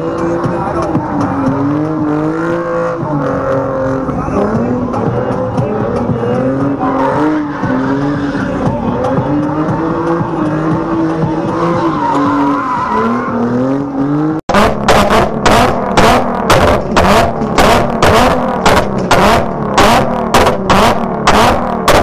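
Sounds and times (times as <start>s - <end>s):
car engine at high revs: 0.0s - 22.0s
tires squealing and skidding: 0.0s - 22.0s
exhaust backfire pops: 14.5s - 22.0s.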